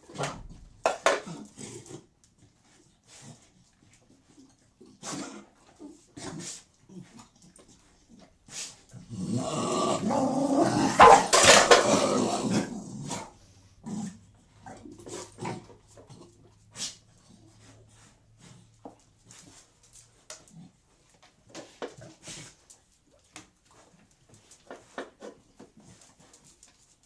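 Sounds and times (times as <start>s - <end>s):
dogs growling and snarling: 0.0s - 19.6s, 20.3s - 21.1s
dog sniffing: 6.3s - 8.9s.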